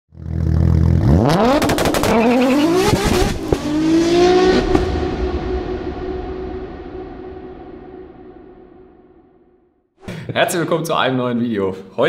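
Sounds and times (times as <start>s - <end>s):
car engine revving: 0.1s - 8.6s.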